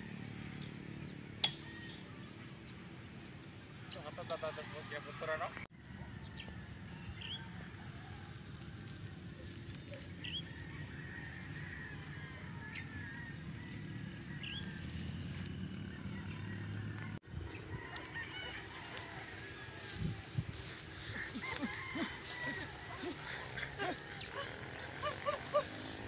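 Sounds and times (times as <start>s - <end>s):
wind rumble on microphone: 17.2s - 22.9s
fowl calling: 17.8s - 26.0s.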